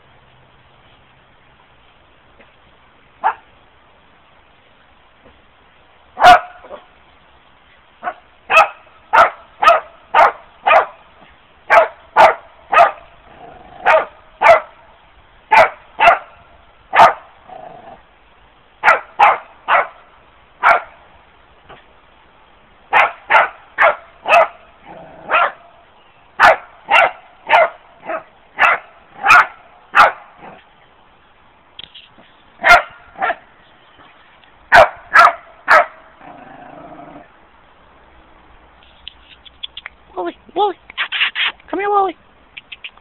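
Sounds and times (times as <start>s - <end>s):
dog barking: 3.2s - 3.5s, 6.2s - 6.9s, 8.0s - 11.0s, 11.7s - 13.1s, 13.8s - 14.8s, 15.5s - 17.3s, 18.8s - 20.0s, 20.6s - 21.0s, 22.9s - 24.6s, 25.2s - 25.7s, 26.4s - 30.6s, 32.6s - 33.4s, 34.7s - 36.0s.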